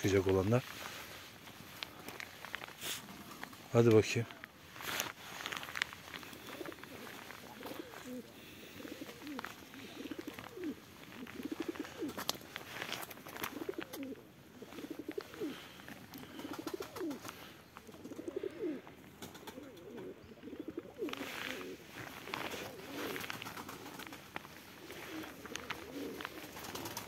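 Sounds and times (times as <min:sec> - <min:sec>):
beaks pecking at gravel: 0:01.3 - 0:27.0
pigeons cooing: 0:05.4 - 0:27.0.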